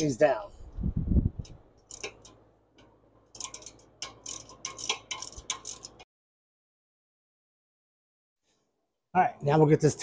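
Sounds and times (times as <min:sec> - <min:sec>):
hand ratchet clicking: 0:01.4 - 0:06.0.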